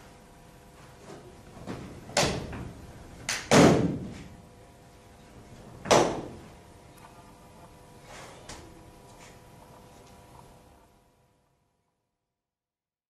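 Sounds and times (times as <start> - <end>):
hand and foot slaps and thuds: 1.1 - 2.7, 3.3 - 4.4.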